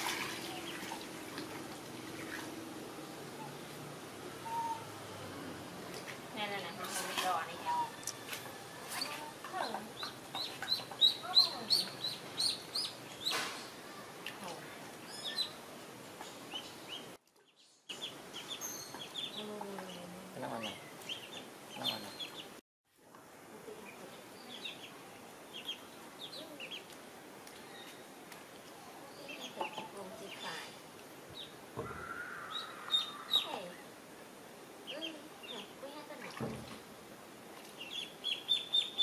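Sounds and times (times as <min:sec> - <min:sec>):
ducklings peeping: 0:09.6 - 0:13.4, 0:17.9 - 0:22.5, 0:24.5 - 0:24.9, 0:25.5 - 0:26.9, 0:31.4 - 0:33.6, 0:37.8 - 0:39.0.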